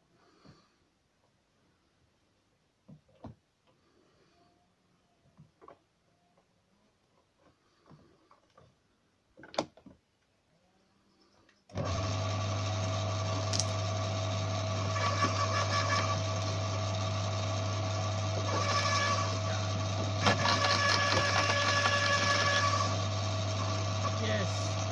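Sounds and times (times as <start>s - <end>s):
garden shredder motor humming: 11.7s - 24.9s.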